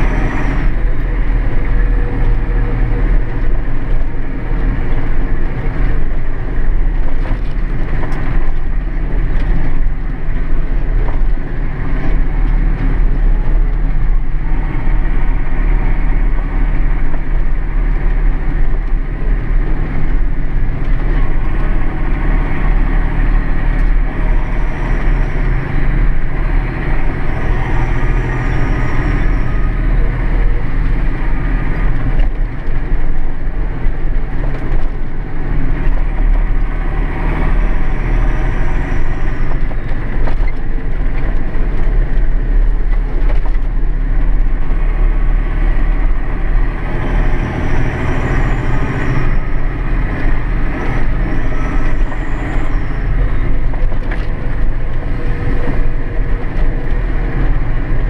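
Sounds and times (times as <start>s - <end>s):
tractor diesel engine droning: 0.0s - 58.0s.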